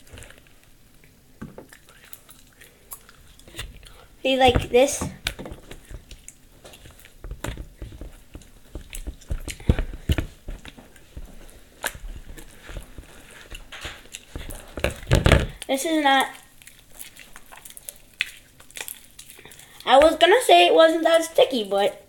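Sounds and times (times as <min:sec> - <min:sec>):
slime squelching by hand: 0:00.0 - 0:22.0.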